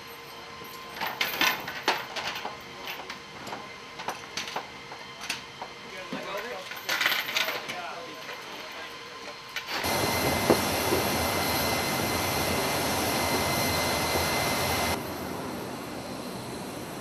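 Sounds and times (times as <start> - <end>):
metal chains clinking: 6.6 - 8.6.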